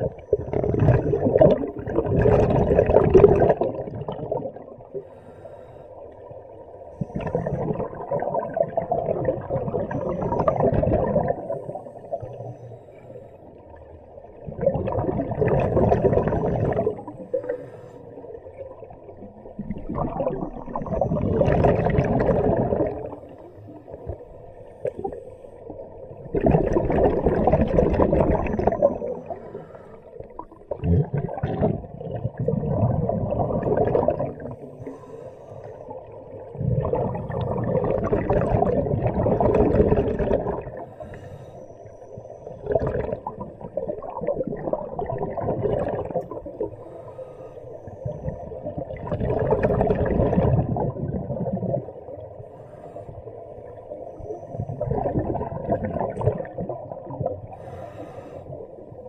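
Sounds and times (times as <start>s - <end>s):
exhaled air bubbling: 0.0s - 59.0s
diver breathing through regulator: 5.0s - 6.2s, 16.7s - 18.4s, 29.1s - 30.4s, 34.4s - 36.0s, 40.7s - 42.2s, 46.6s - 48.4s, 52.4s - 54.8s, 57.5s - 59.0s.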